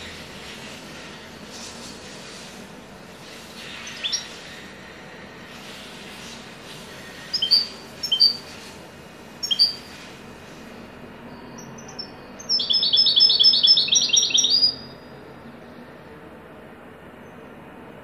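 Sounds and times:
goldfinch singing: 3.8 - 4.4, 7.3 - 8.6, 9.4 - 10.0, 11.6 - 15.0.

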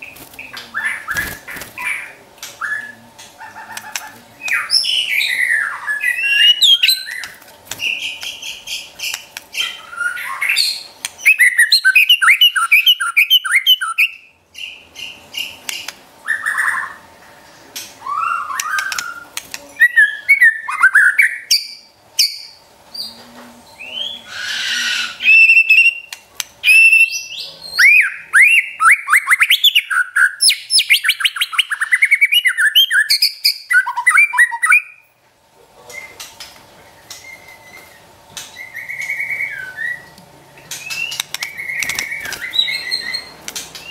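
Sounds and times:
songbird singing whistled phrases: 4.4 - 8.5, 9.6 - 15.5, 18.0 - 23.2, 23.8 - 35.0, 37.1 - 43.9.

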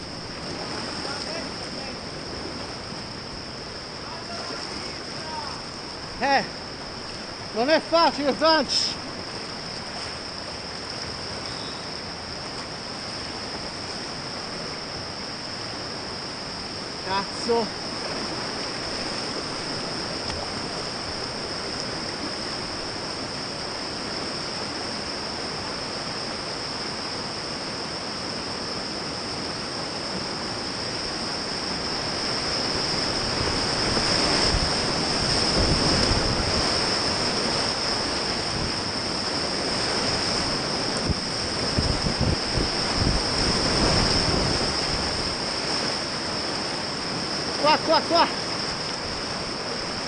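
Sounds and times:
water splashes: 0.0 - 15.8, 16.4 - 50.0
river rapids rushing: 0.0 - 50.0
wind buffeting microphone: 31.6 - 46.5.

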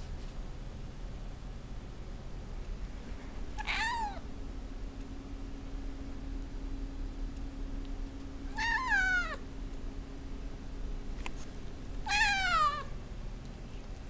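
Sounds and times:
cat meowing: 3.6 - 4.3, 8.5 - 9.4, 12.0 - 12.9.

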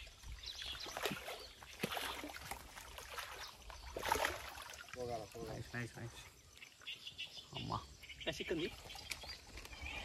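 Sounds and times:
fish splashing in water: 0.3 - 5.0.

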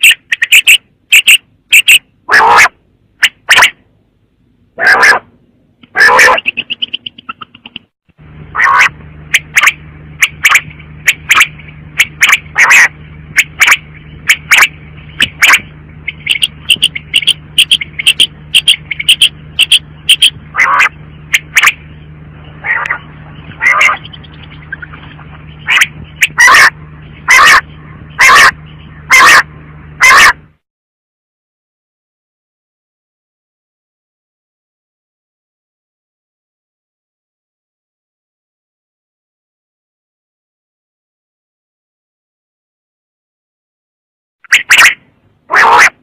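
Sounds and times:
quail calling: 0.0 - 3.8, 4.8 - 7.8, 8.5 - 30.4, 44.4 - 46.0
steady low hum: 0.0 - 30.6, 44.4 - 46.0.

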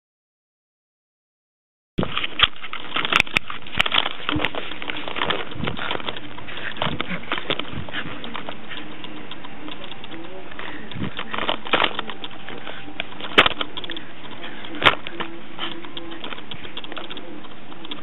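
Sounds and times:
puppy mouthing a lead: 4.1 - 18.0.

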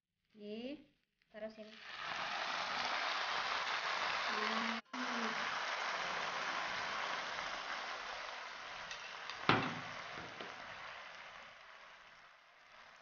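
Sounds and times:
gravy sizzling on hot plate: 1.5 - 13.0
sharp knock: 9.5 - 10.4.

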